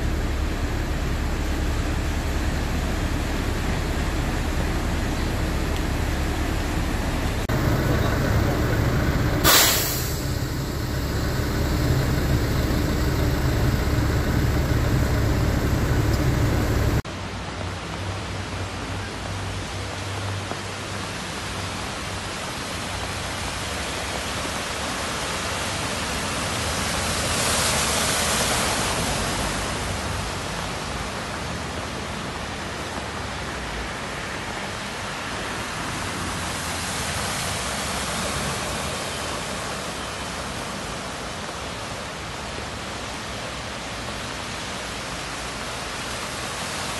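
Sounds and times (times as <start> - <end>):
heavy rain hissing: 0.0 - 17.0
vehicle engines rumbling: 0.0 - 17.1
running floodwater: 0.0 - 46.9.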